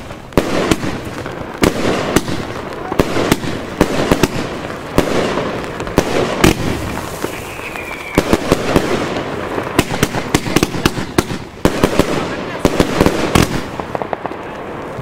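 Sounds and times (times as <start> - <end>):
firework bangs: 0.0 - 15.0
firework crackling: 0.0 - 15.0
falling firework whistle: 6.4 - 9.0.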